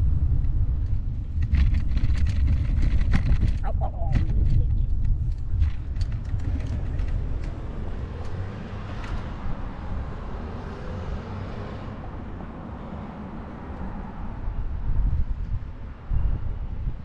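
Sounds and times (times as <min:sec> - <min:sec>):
road traffic: 0:00.0 - 0:17.0
wind rumble on microphone: 0:00.0 - 0:17.0.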